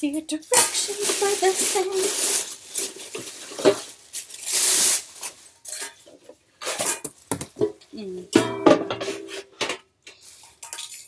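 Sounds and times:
plastic packaging rustling: 0:00.4 - 0:07.8
parts knocking and clattering: 0:05.8 - 0:10.0.

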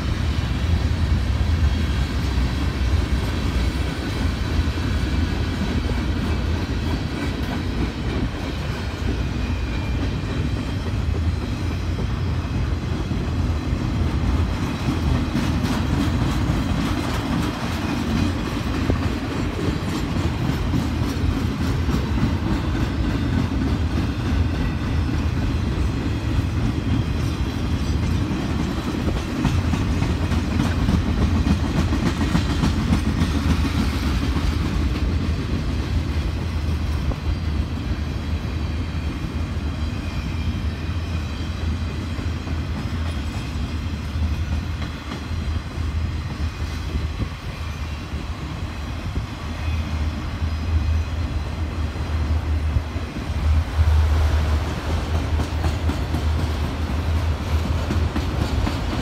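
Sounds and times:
clickety-clack over rail joints: 0:00.0 - 0:59.0
train wheels rumbling on rail: 0:00.0 - 0:59.0.

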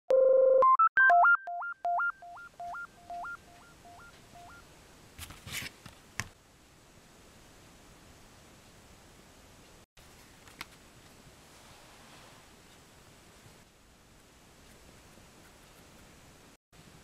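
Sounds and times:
synthesizer jingle beeps: 0:00.1 - 0:04.6.

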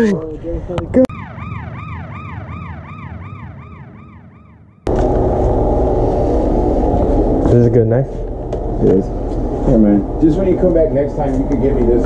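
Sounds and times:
siren-like electronic wail: 0:01.1 - 0:05.9.

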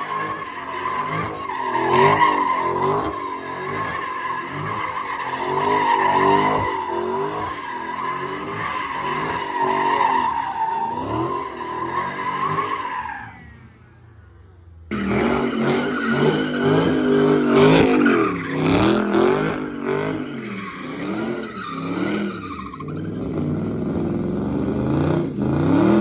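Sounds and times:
car engine revving: 0:00.0 - 0:26.0
tyre squealing: 0:14.9 - 0:23.4.

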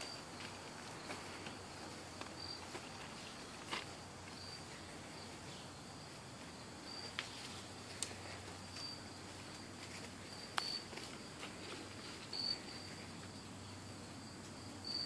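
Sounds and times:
insect chirping: 0:00.0 - 0:15.0
footsteps on leafy ground: 0:06.4 - 0:13.3.

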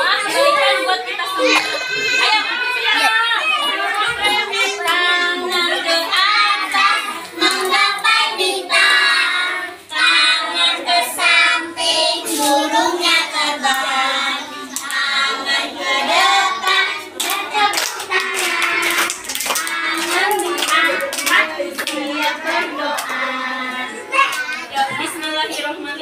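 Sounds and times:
children singing: 0:01.2 - 0:25.1
hands clapping: 0:16.6 - 0:23.2.

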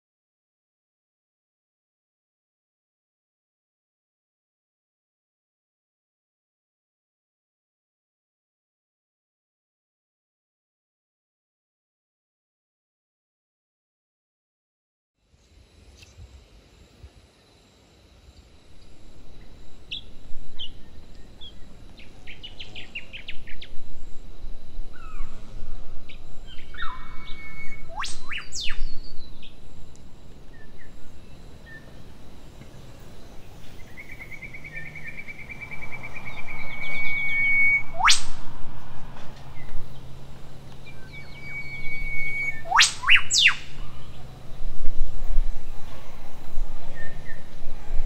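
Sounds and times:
low background hiss: 0:15.2 - 0:48.0
birds chirping: 0:18.4 - 0:38.3, 0:39.3 - 0:48.0
high bird trill: 0:18.7 - 0:38.4, 0:40.8 - 0:44.6
sharp rising bird whistle: 0:18.8 - 0:29.9, 0:31.6 - 0:32.0, 0:33.8 - 0:38.5, 0:40.8 - 0:44.2.

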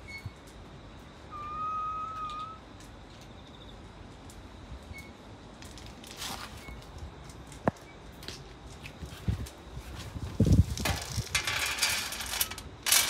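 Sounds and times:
faint outdoor background noise: 0:00.0 - 0:13.0
long whistled note: 0:01.3 - 0:02.6.

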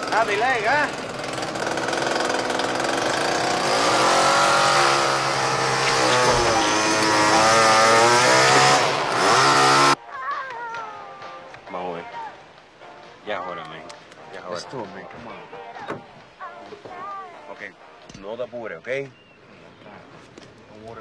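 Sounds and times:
chainsaw revving: 0:00.0 - 0:10.0.

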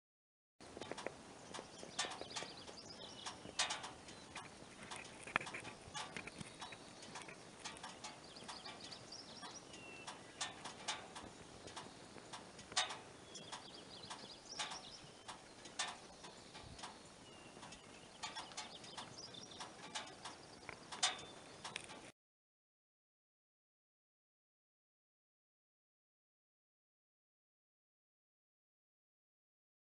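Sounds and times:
small birds chirping: 0:00.6 - 0:22.1.

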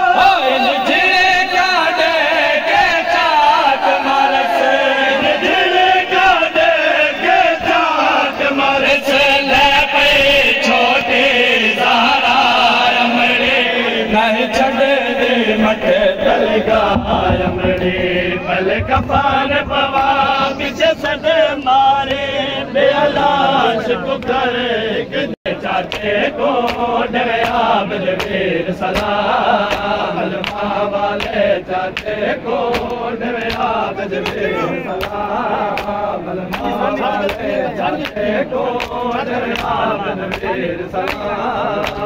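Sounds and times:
men chanting a lament: 0:00.0 - 0:42.0
chest-beating slaps: 0:31.2 - 0:38.2.

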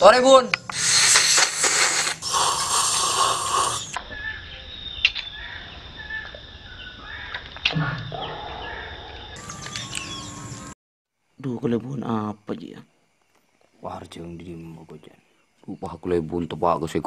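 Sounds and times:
man slurping coffee: 0:00.7 - 0:04.0
faint bird chirps: 0:03.5 - 0:10.8.

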